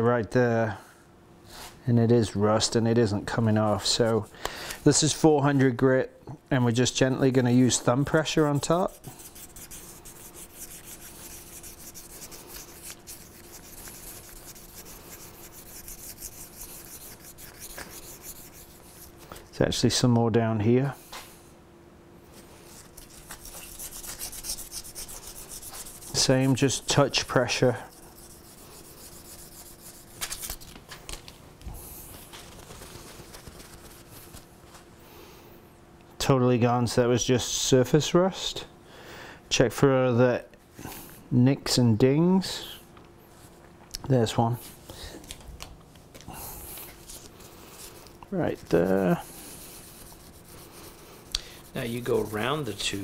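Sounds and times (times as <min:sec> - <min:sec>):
sandpaper rubbing on metal: 0:07.4 - 0:19.2, 0:22.6 - 0:30.6, 0:48.4 - 0:53.0
paper towel crinkling and rubbing: 0:32.0 - 0:34.9.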